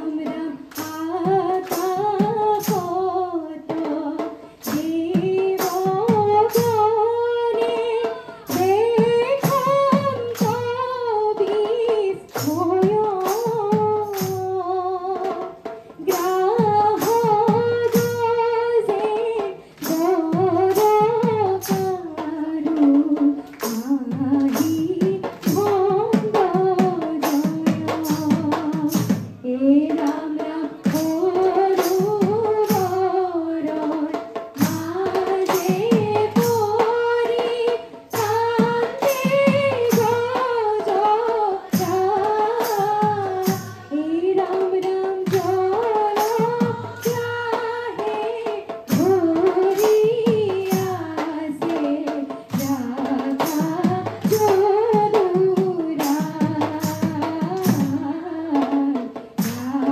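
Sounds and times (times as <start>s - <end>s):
women singing devotional song: 0.0s - 59.9s
hands clapping steady beat: 0.7s - 3.0s, 4.6s - 6.8s, 12.2s - 14.6s, 22.8s - 29.4s, 30.0s - 32.9s, 34.1s - 37.0s, 41.6s - 43.9s, 45.1s - 47.4s, 48.7s - 51.3s, 55.7s - 58.0s, 59.4s - 59.7s.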